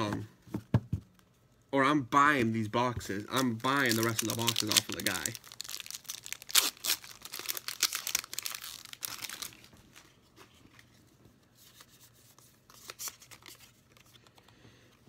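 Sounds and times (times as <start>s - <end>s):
foil wrapper crinkling and tearing: 3.2s - 10.1s.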